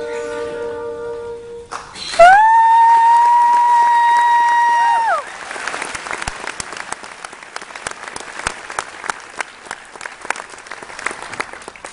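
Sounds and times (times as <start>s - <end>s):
audience applauding: 2.2s - 11.9s.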